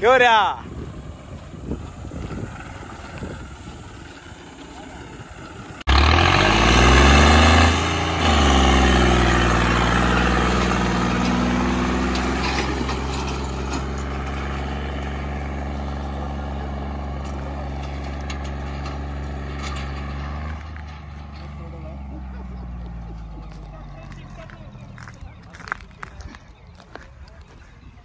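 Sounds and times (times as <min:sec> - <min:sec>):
tractor diesel engine revving: 0:00.0 - 0:27.5.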